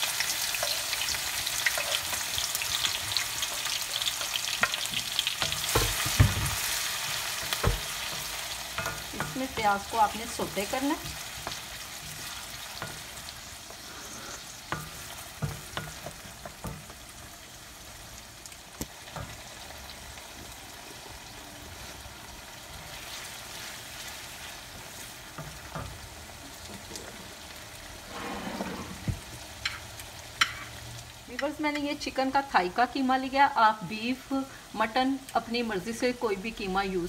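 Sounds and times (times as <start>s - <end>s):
onion sizzling in hot oil: 0.0s - 37.0s
wooden spoon knocking against pan: 5.4s - 6.6s, 7.5s - 8.0s.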